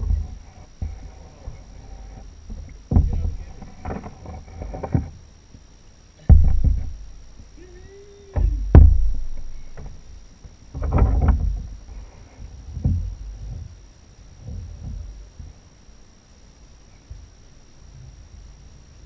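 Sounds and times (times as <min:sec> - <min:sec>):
heavy thuds on plastic kayak: 0:02.5 - 0:05.2, 0:06.2 - 0:07.1, 0:08.4 - 0:10.0, 0:10.8 - 0:11.8, 0:12.4 - 0:13.8.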